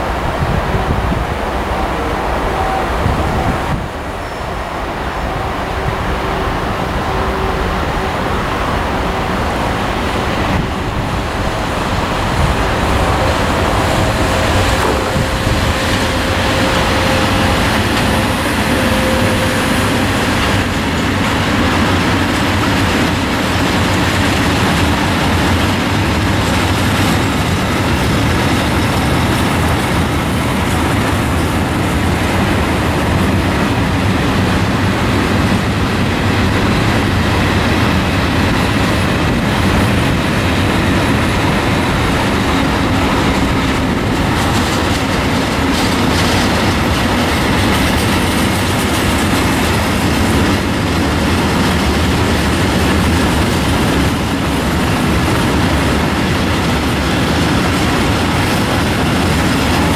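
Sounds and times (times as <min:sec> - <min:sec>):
freight train wagons rolling: 0:00.0 - 0:59.9.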